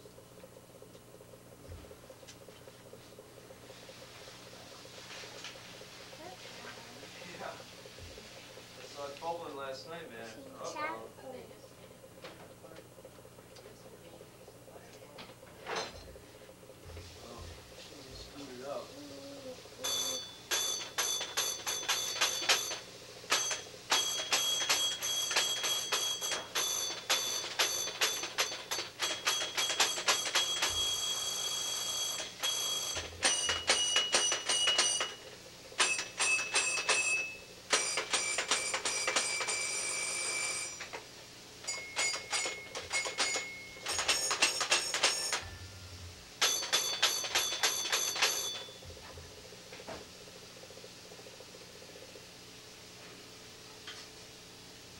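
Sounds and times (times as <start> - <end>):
small toy bell ringing: 19.8 - 35.2, 35.8 - 40.8, 41.6 - 45.6, 46.4 - 48.8.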